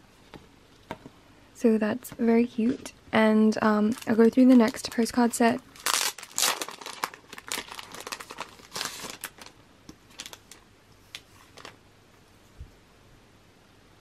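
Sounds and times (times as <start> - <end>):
paper and card rustling: 5.8 - 9.5.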